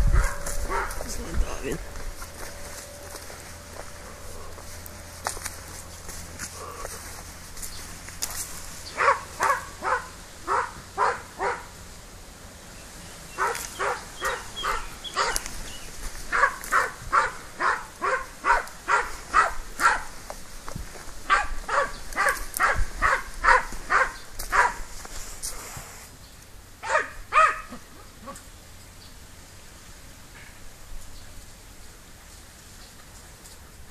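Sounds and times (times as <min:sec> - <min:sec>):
dog barking: 0:00.1 - 0:01.1, 0:09.0 - 0:11.7, 0:13.4 - 0:15.5, 0:16.3 - 0:20.1, 0:21.3 - 0:24.8, 0:26.8 - 0:27.8.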